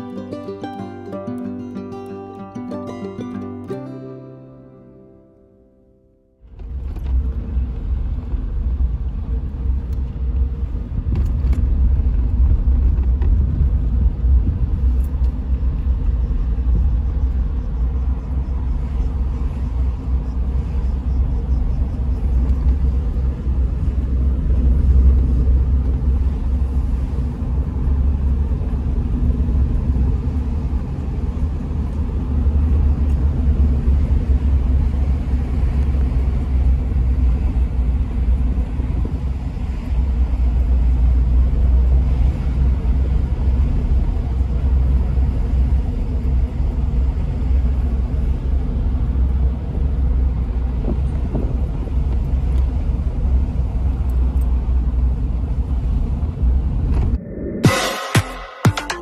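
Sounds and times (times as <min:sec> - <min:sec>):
car engine and tyre noise: 0:06.4 - 0:58.7.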